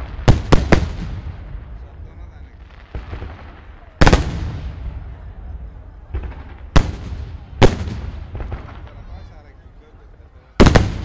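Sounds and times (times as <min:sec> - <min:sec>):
faint fireworks pops: 0:00.0 - 0:11.0
fireworks bursting: 0:00.0 - 0:11.0.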